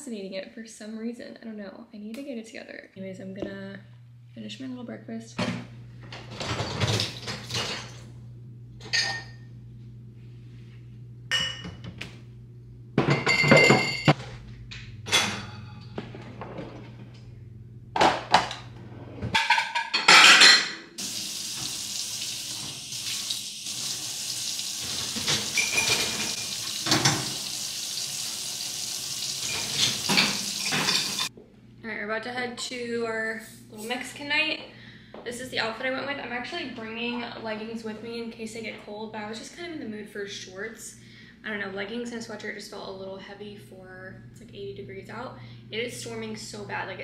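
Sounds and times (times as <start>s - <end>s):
dishes and utensils clinking: 13.0s - 14.2s, 15.1s - 16.8s, 19.3s - 20.8s, 24.8s - 27.4s, 29.4s - 31.3s
tap water running into sink: 21.0s - 31.3s.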